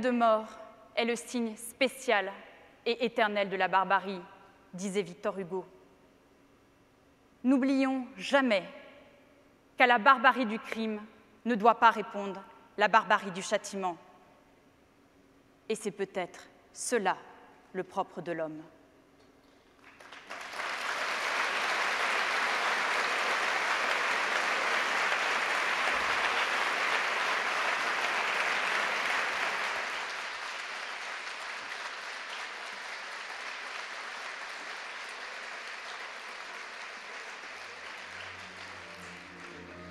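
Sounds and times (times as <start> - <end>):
large audience applauding: 19.8 - 39.9.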